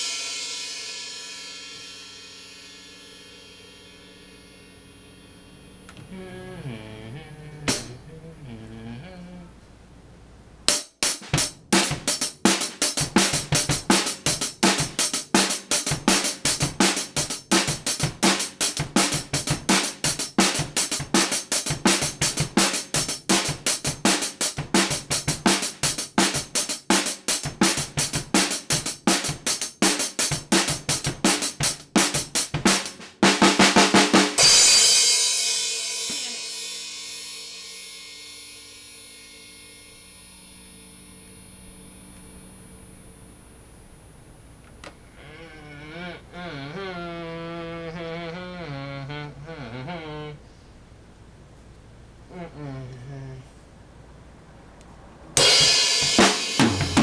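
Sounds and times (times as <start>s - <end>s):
drum kit beat: 0.0s - 4.2s, 7.7s - 8.0s, 10.7s - 40.9s, 55.4s - 57.0s
crashing cymbals: 0.0s - 5.9s, 34.4s - 43.3s, 55.4s - 57.0s.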